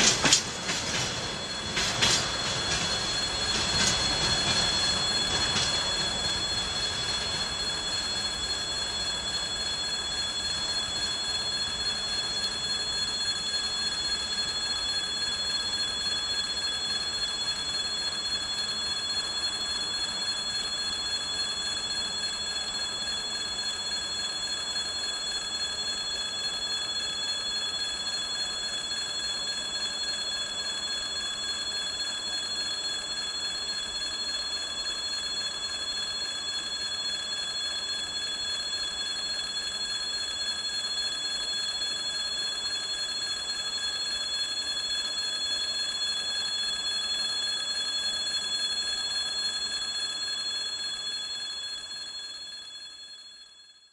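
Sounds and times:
freight train rolling: 0.0s - 15.0s
high-pitched ringing tones: 0.0s - 53.9s.

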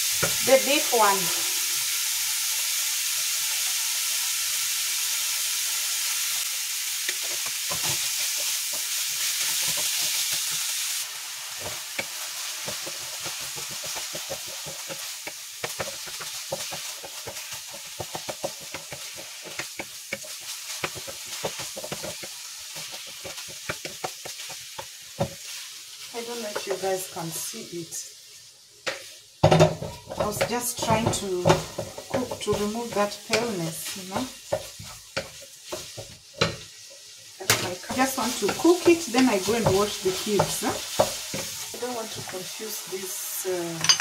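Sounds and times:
meat sizzling in a frying pan: 0.0s - 44.0s
wooden spatula scraping a pan: 7.1s - 26.8s, 29.0s - 43.2s.

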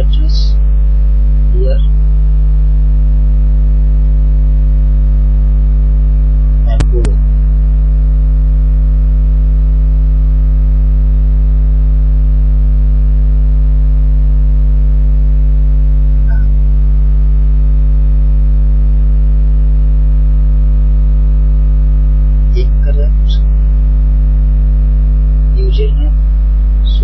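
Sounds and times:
electrical mains hum: 0.0s - 2.8s, 15.1s - 16.9s, 22.3s - 27.0s.

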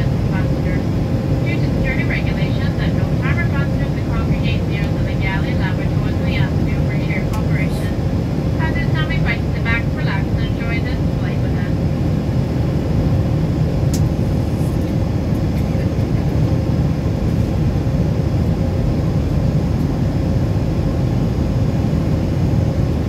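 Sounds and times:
faint steady hum: 0.0s - 23.0s
jet engine drone in cabin: 0.0s - 23.0s
small click: 13.9s - 14.1s.

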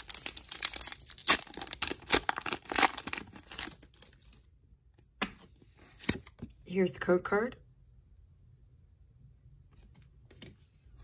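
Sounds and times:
foil wrapper crinkling and tearing: 0.0s - 4.5s.

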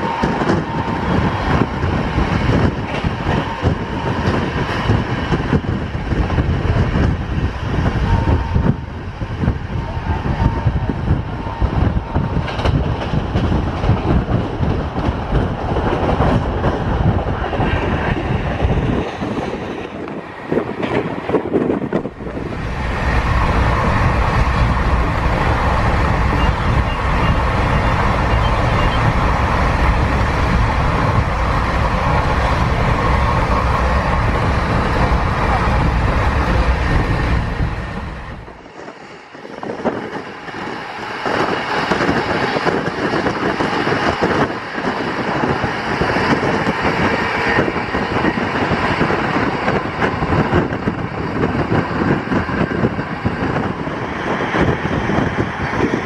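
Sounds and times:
rushing air: 0.0s - 56.0s
train wheels rumbling on rails: 0.0s - 56.0s.

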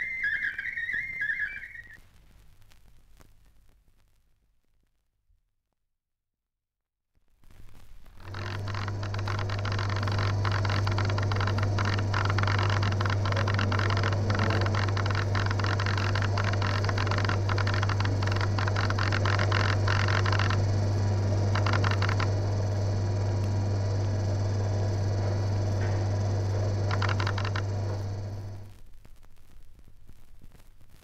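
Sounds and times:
mechanical hum: 0.0s - 2.0s, 7.5s - 31.0s
rapid mechanical clicking: 8.2s - 28.7s.

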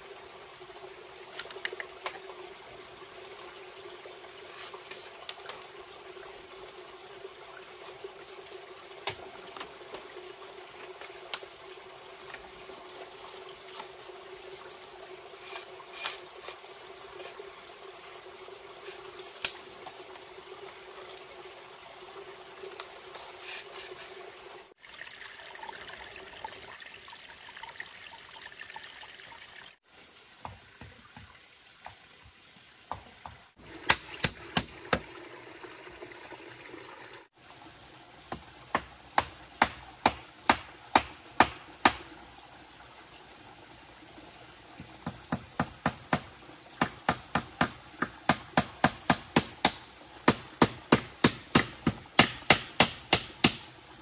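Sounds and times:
water trickling: 0.0s - 39.0s
hand tool strikes on bamboo: 19.4s - 19.6s, 32.9s - 35.0s, 38.3s - 42.1s, 45.0s - 53.7s.

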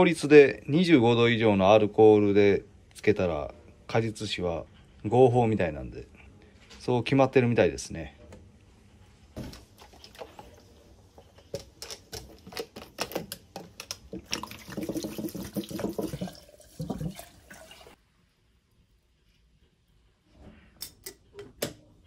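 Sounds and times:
liquid gurgling into a glass jar: 14.1s - 18.0s.

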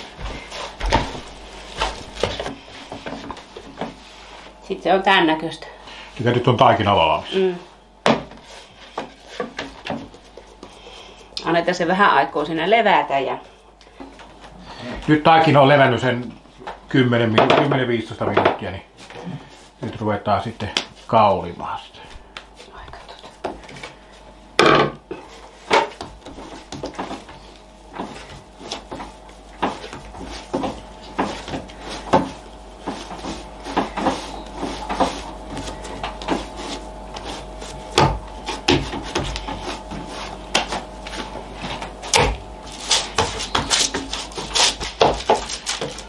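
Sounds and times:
faint steady hum: 0.0s - 46.0s
hands patting dough: 8.0s - 11.4s, 25.4s - 46.0s.

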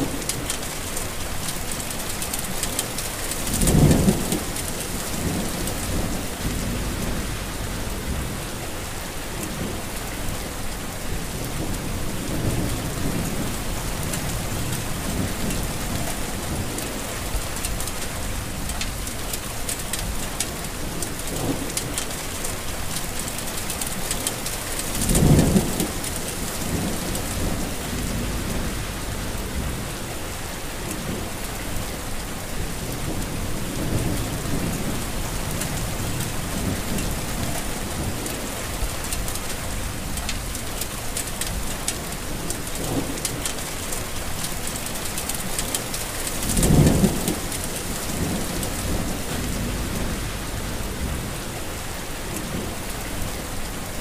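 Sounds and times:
heavy rain falling: 0.0s - 54.0s
thunder rolling: 3.4s - 9.9s, 11.2s - 19.0s, 24.9s - 30.2s, 32.5s - 40.6s, 46.4s - 53.4s.

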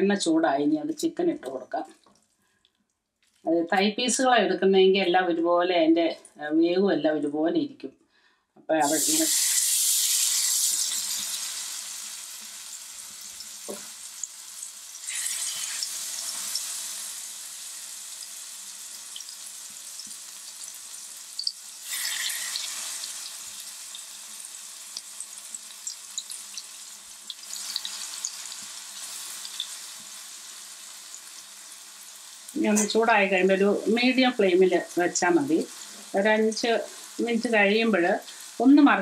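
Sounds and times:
chicken sizzling in hot oil: 8.8s - 39.0s.

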